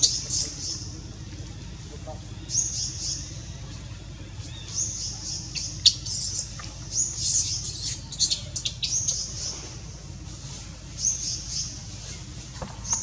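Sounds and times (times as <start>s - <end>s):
sharp chirps and squeaks: 5.5s - 9.3s.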